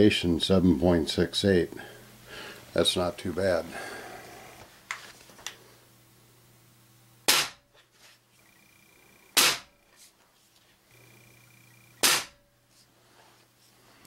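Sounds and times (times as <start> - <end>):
air rifle shots: 7.3 - 7.6, 9.3 - 9.8, 12.0 - 12.4.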